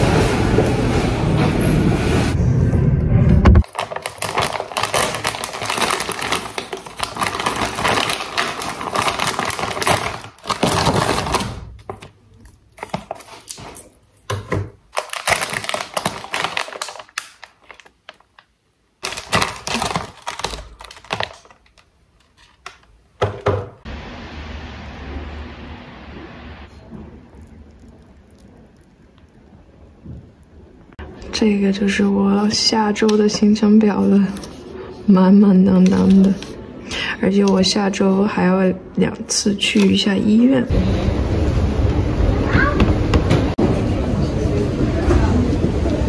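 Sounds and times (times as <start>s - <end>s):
plastic packaging crinkling: 3.6s - 23.0s, 27.2s - 29.9s.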